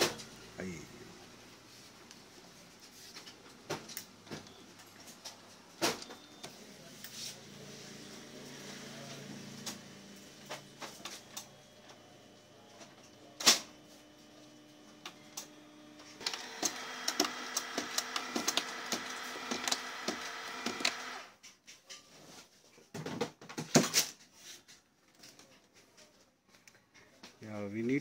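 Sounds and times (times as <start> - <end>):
printer motor humming: 8.1 - 21.3
printer sharp clicks: 16.2 - 21.3.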